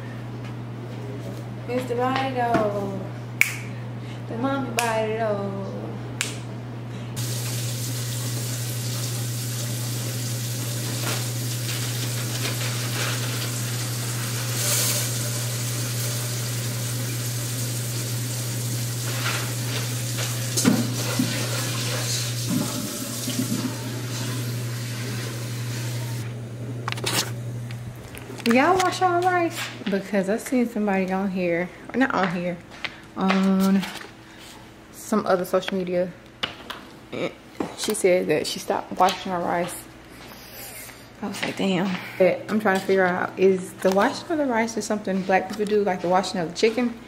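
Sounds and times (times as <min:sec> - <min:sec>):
tap water running into sink: 0:07.2 - 0:26.2.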